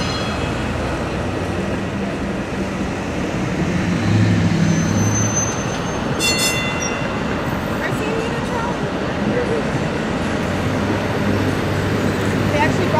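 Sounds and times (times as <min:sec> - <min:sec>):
street traffic: 0:00.0 - 0:12.9
streetcar rolling on rails: 0:00.0 - 0:12.9
thin high squeal: 0:04.7 - 0:07.3.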